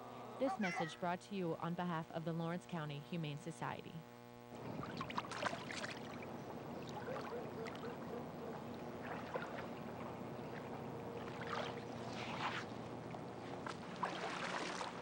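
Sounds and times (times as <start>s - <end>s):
pool water lapping: 4.5s - 15.0s
small splashes: 4.6s - 15.0s.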